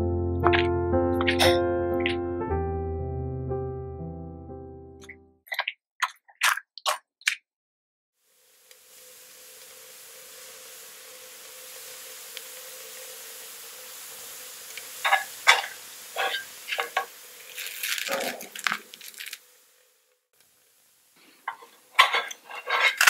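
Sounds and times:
bread sizzling in a pan: 0:08.2 - 0:23.0
crackles and pops: 0:08.3 - 0:23.0.

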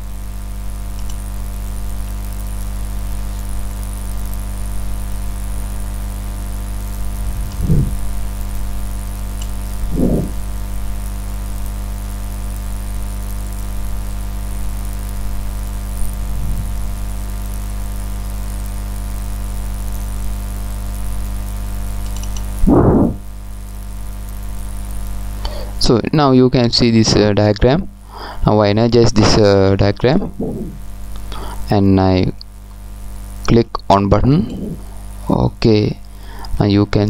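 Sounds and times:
electrical mains hum: 0:00.0 - 0:37.0
short low thumps: 0:07.3 - 0:08.2, 0:09.8 - 0:10.5, 0:22.6 - 0:23.3, 0:30.3 - 0:30.9.

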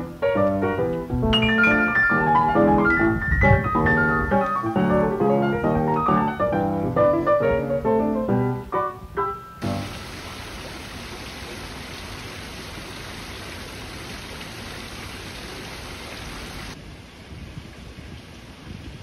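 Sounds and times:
outdoor background: 0:00.0 - 0:19.0
water splashing into pool: 0:09.6 - 0:16.8.

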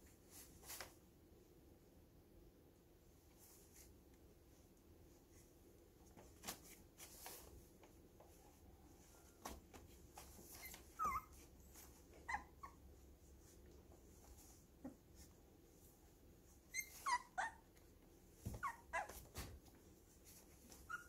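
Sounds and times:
puppies whimpering: 0:10.6 - 0:11.5, 0:16.7 - 0:17.7.

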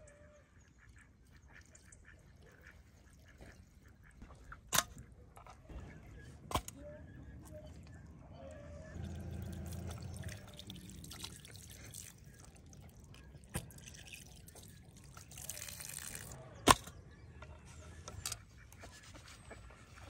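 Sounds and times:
water trickling and dripping: 0:09.0 - 0:16.4.

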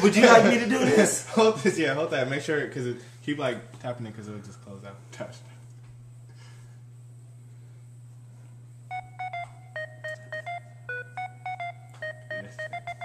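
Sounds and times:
steady low hum: 0:00.0 - 0:13.0
short electronic phone beeps: 0:08.9 - 0:13.0.

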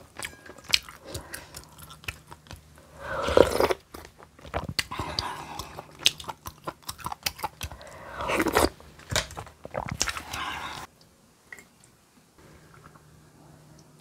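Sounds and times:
crunchy bites and wet chewing: 0:00.7 - 0:10.5.

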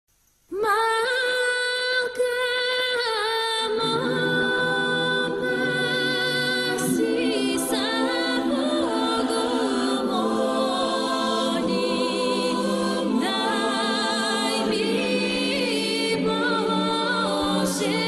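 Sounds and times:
high voice singing long note: 0:00.6 - 0:18.0
lower voices singing drone: 0:03.8 - 0:18.0.

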